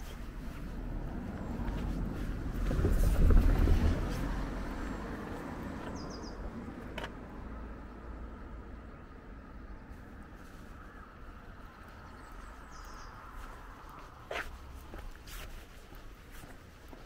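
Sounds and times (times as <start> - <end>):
car passing by: 0.0 - 8.6
small bird chirps: 5.9 - 6.4, 11.6 - 13.5.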